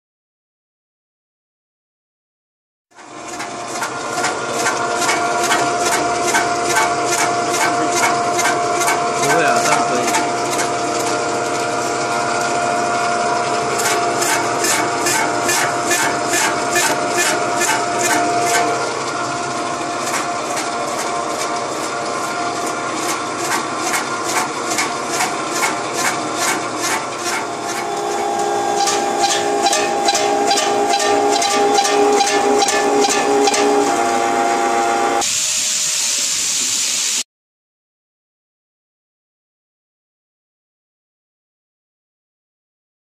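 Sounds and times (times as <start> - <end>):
dicing machine clatter: 3.0 - 12.6, 13.3 - 34.0
machine hum: 3.0 - 35.3
steady hiss: 35.2 - 37.2.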